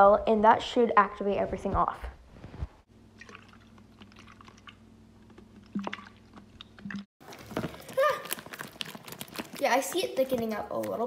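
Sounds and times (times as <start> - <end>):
spatula squishing slime in bowl: 3.3 - 11.0.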